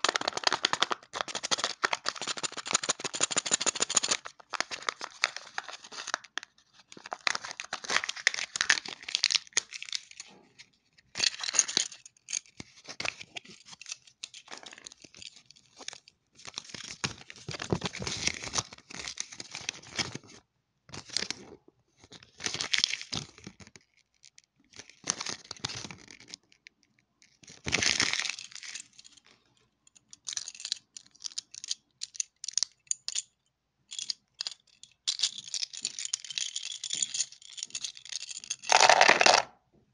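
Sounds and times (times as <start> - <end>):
wrapper crinkling as torn open: 0.0 - 10.2, 38.7 - 39.5.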